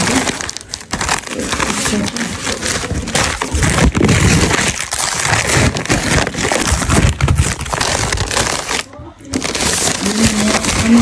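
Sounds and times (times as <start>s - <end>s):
paper envelope crinkling: 0.0s - 11.0s.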